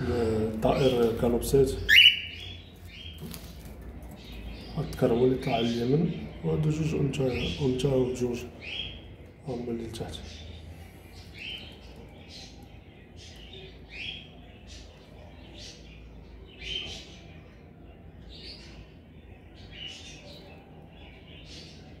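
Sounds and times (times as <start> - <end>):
cockatiels chirping: 1.8 - 4.8.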